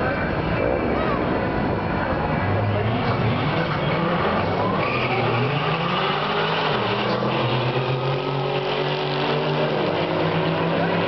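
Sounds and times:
drag cars accelerating: 0.0s - 11.0s.

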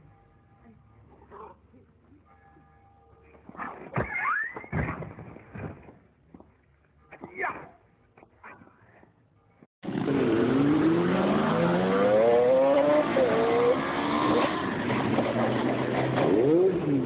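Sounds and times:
motorcycle engines revving: 9.8s - 17.0s.

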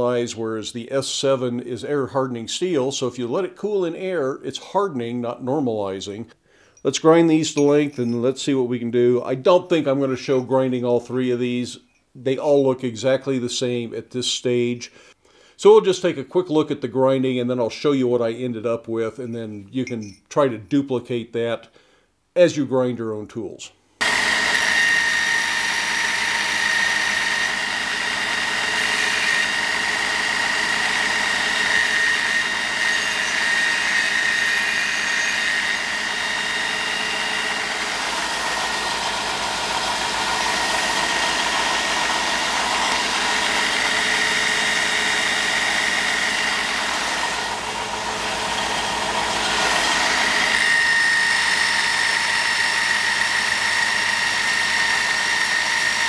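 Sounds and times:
steel grinding hiss: 24.0s - 37.6s
belt grinder whine: 24.0s - 56.0s.

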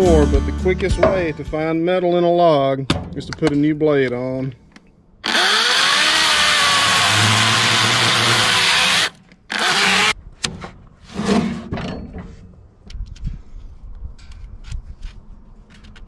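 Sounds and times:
electric chainsaw cutting log: 5.2s - 10.2s.

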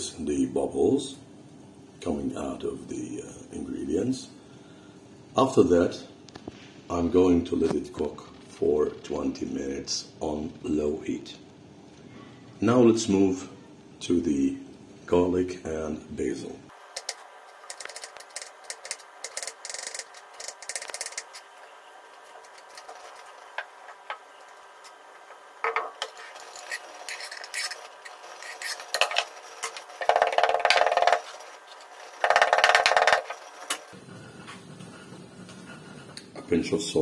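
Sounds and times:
pestle grinding in wooden mortar: 16.8s - 33.9s.

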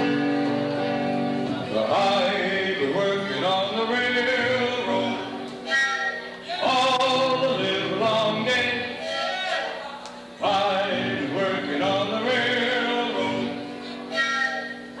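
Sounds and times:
man and woman singing: 1.6s - 5.4s, 6.4s - 13.8s.

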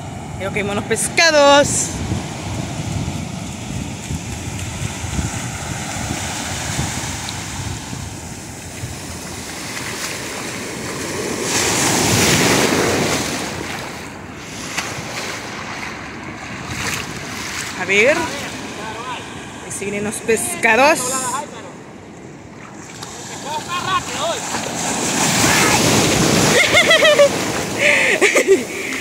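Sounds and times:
wind buffeting microphone: 0.0s - 18.9s
ocean surf breaking on beach: 0.0s - 29.0s.

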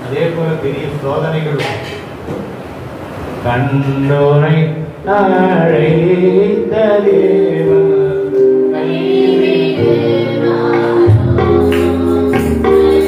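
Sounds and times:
people singing worship song: 5.1s - 13.0s
musical accompaniment: 5.4s - 13.0s.

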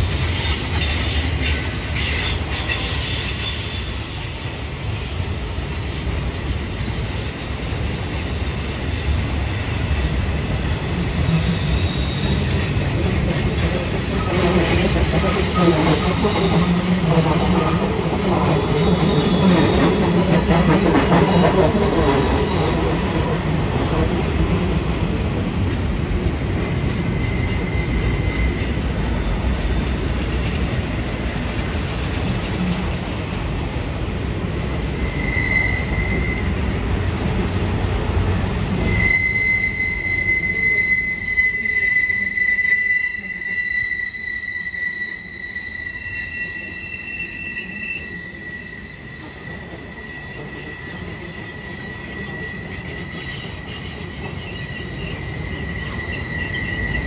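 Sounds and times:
train wheels rumbling on rail: 0.0s - 57.0s
high-pitched wheel squeals: 0.4s - 6.1s, 26.7s - 29.1s, 34.8s - 36.7s, 38.8s - 57.0s
steady flange squeal: 9.9s - 25.4s, 26.5s - 29.9s, 34.8s - 36.8s, 38.7s - 57.0s.

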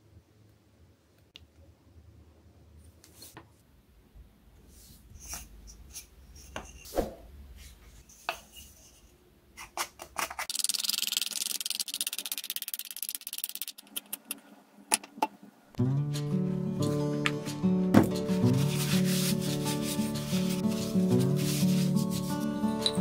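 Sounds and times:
knife shaving wood: 18.5s - 22.9s.

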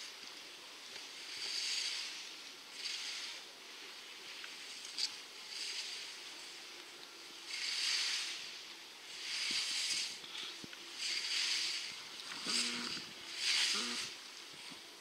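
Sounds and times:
skis scraping on snow: 7.5s - 15.0s.

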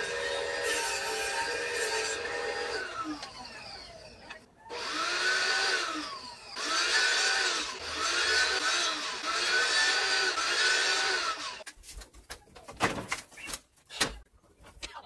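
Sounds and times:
table saw motor whining: 0.0s - 11.6s.

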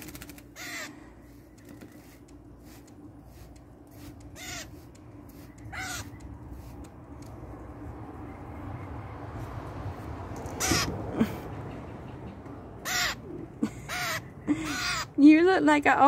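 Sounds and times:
grackle harsh calls: 0.0s - 2.2s, 3.3s - 6.8s, 10.5s - 11.0s, 12.6s - 15.2s.

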